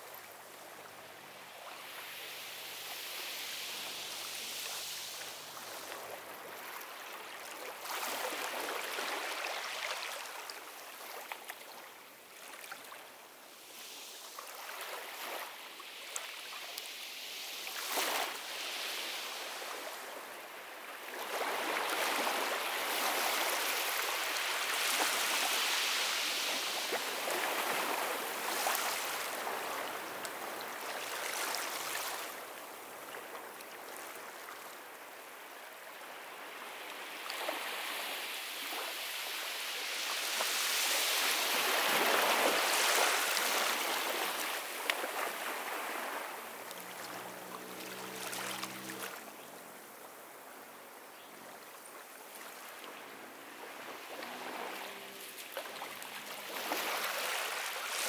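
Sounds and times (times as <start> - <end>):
ocean surf breaking on beach: 16.9 - 33.3, 36.1 - 50.7, 52.3 - 58.0.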